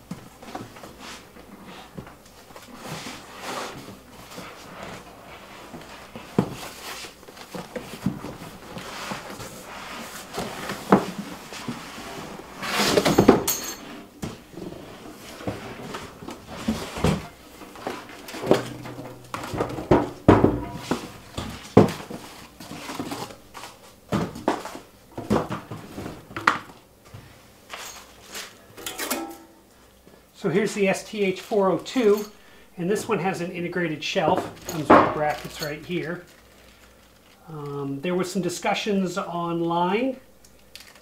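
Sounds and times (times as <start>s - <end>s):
cardboard scraping and rustling: 2.6s - 13.4s, 14.0s - 26.3s
steel cabinet knocking: 18.4s - 21.9s
plastic wrapping crinkling: 35.2s - 37.5s, 40.4s - 41.0s.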